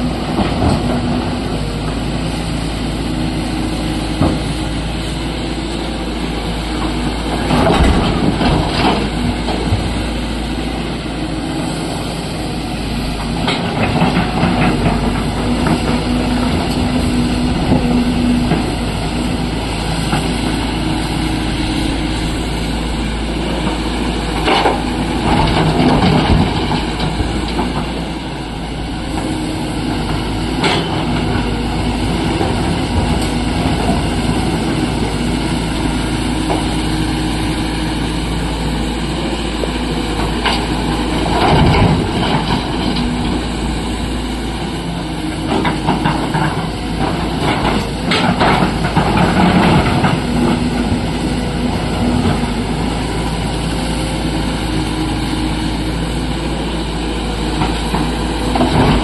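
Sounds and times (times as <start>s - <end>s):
excavator diesel engine: 0.0s - 59.0s.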